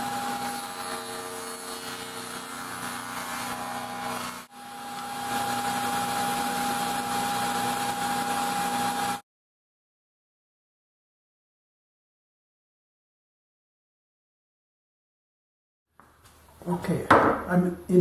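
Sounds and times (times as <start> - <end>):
table saw running: 0.0 - 9.2.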